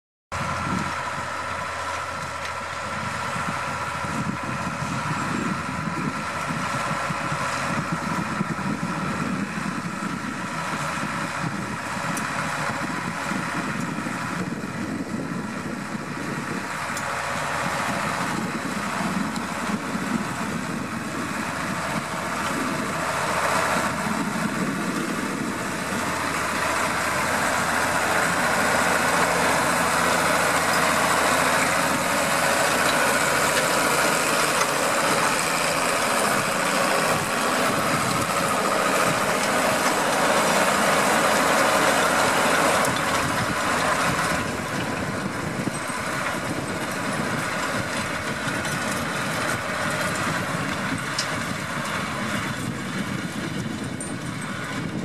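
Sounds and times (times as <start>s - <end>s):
tractor diesel engine: 0.3s - 55.0s.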